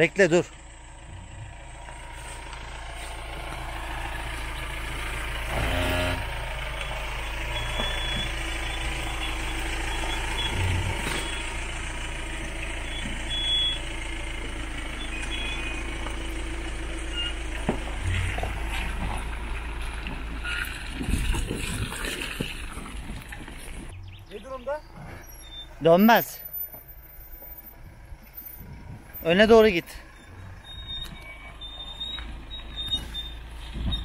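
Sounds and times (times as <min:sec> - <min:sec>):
vehicle engine running: 0:00.0 - 0:34.0.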